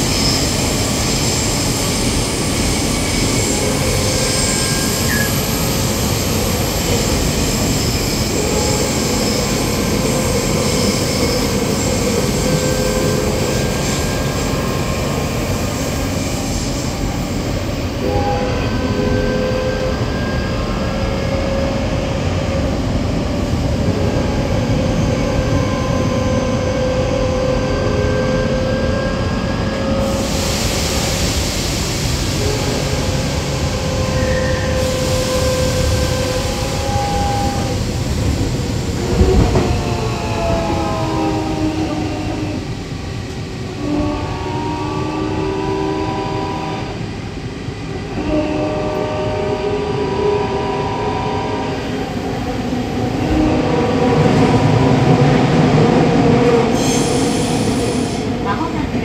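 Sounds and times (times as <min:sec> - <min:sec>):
train wheels rumbling on rail: 0:00.0 - 0:59.0
hiss: 0:30.0 - 0:36.8
train motor whine: 0:32.2 - 0:42.8.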